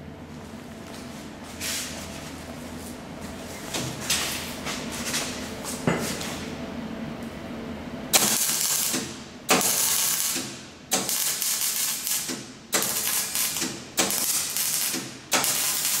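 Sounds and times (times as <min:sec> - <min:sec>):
arc welding crackling hisses: 0:08.1 - 0:16.0.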